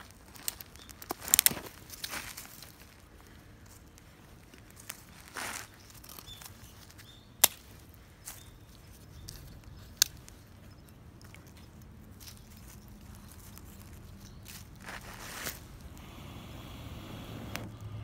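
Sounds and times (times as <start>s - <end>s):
twigs cracking in campfire: 0.0s - 16.0s
fire crackling: 11.8s - 18.0s.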